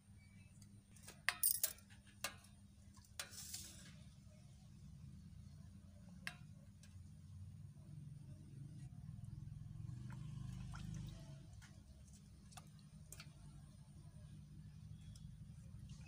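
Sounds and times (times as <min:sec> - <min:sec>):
water splashing out: 0:10.0 - 0:11.5.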